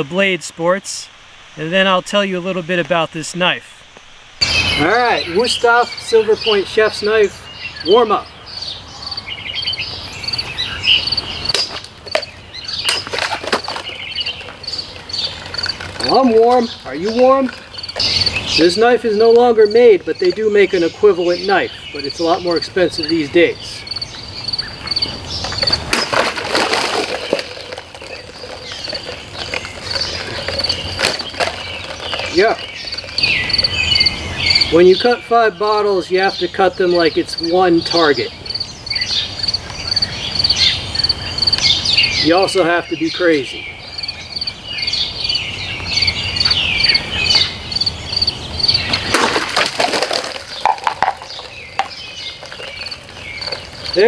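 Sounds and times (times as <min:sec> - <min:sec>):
crickets chirping: 0:00.0 - 0:54.0
cut pieces falling: 0:25.5 - 0:33.1, 0:49.0 - 0:54.0.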